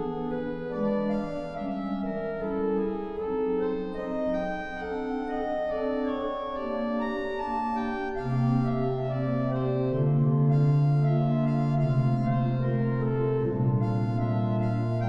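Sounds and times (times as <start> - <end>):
pipe organ playing sustained chords: 0.0 - 15.0
low organ pedal note: 8.1 - 15.0.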